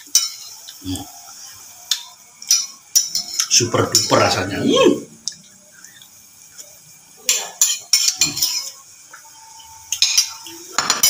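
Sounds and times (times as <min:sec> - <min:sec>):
metal spoon clinking on bowl: 0:09.9 - 0:11.0.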